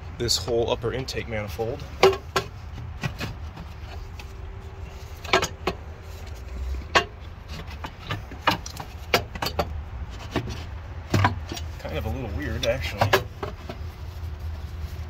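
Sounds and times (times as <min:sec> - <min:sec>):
low steady rumble: 0:00.0 - 0:15.0
metal clicks and knocks: 0:01.8 - 0:04.4, 0:05.1 - 0:11.8, 0:12.6 - 0:13.8.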